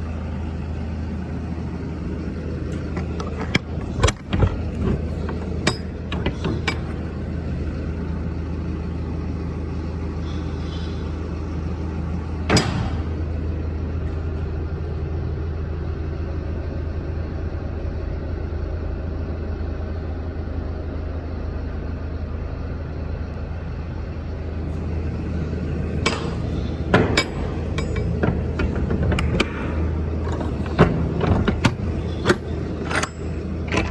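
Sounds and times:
diesel engine idling: 0.0 - 33.9
metal latch clicks: 12.5 - 13.1, 26.0 - 33.9.

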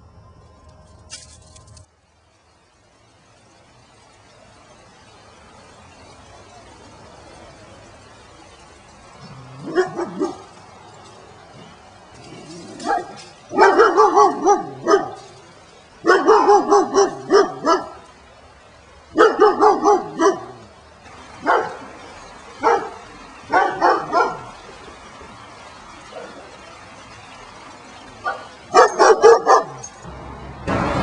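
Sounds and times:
dog barking: 9.6 - 10.5, 12.8 - 15.3, 16.0 - 18.0, 19.1 - 20.6, 21.4 - 21.8, 22.6 - 24.5, 28.2 - 29.9.

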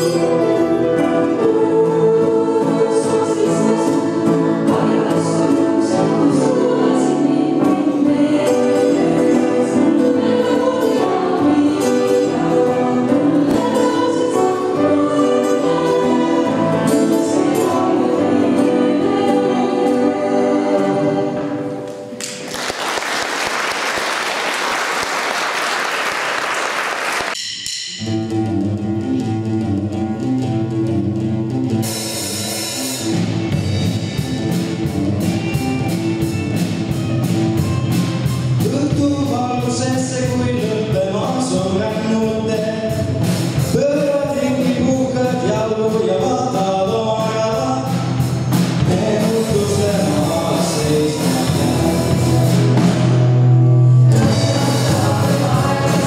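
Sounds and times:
choir singing: 0.0 - 22.1, 48.7 - 53.4, 54.0 - 56.0
guitars and drum kit: 0.0 - 22.5, 27.3 - 56.0
audience applause: 22.2 - 27.4.

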